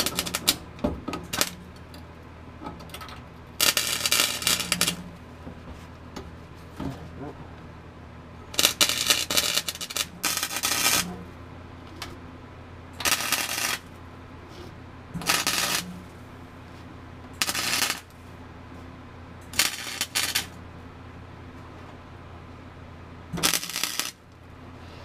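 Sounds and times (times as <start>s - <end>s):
welder arc crackling: 0.0s - 0.6s, 1.3s - 1.9s, 3.6s - 5.2s, 8.6s - 11.2s, 13.0s - 14.0s, 15.2s - 16.2s, 17.4s - 18.2s, 19.5s - 20.6s, 23.4s - 24.3s
low steady hum: 0.0s - 25.0s.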